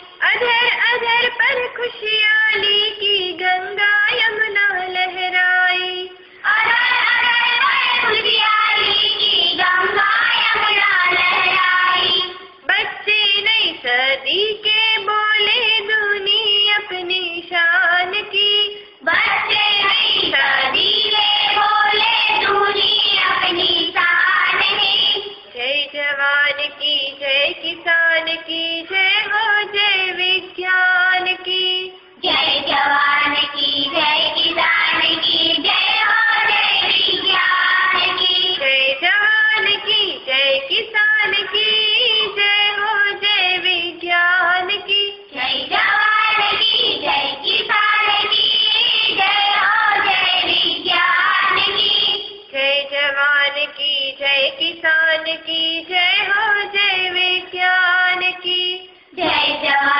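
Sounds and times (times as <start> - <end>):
several voices singing together: 6.4 - 12.5, 19.0 - 52.7, 54.5 - 59.9.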